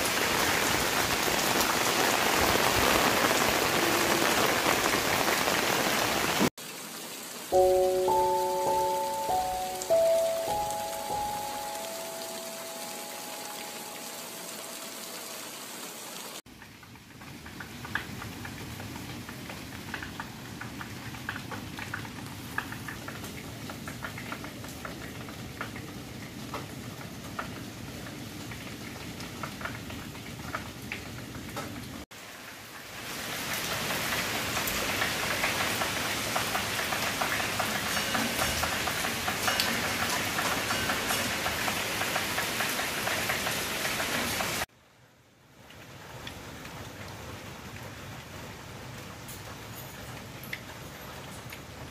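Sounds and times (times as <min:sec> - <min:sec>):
heavy rain on foliage: 0:00.0 - 0:51.9
drips ticking on leaves: 0:07.5 - 0:15.5, 0:16.5 - 0:31.1.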